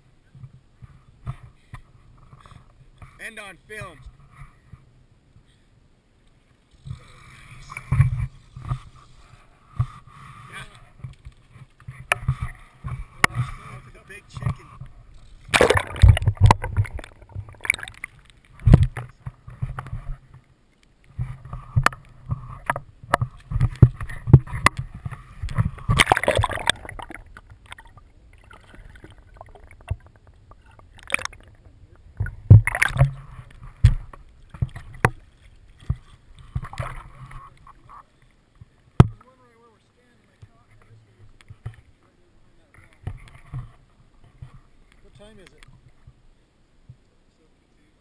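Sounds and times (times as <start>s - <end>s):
river water sloshing and gurgling: 6.6s - 39.4s
water splashes: 6.6s - 46.2s
muffled underwater rumbles: 6.8s - 20.4s, 21.1s - 38.0s.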